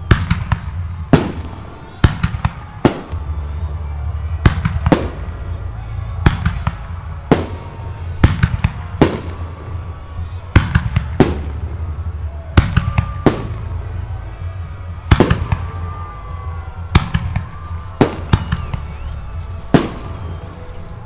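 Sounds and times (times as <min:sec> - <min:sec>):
firework shells booming: 0:15.0 - 0:20.5.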